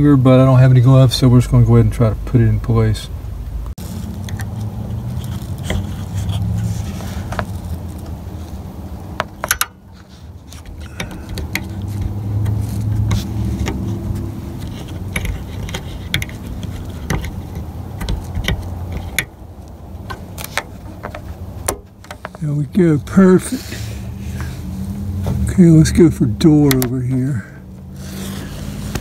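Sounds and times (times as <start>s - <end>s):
steady low rumble: 0.1s - 29.0s
small clicks and scrapes: 3.8s - 22.4s, 27.9s - 29.0s.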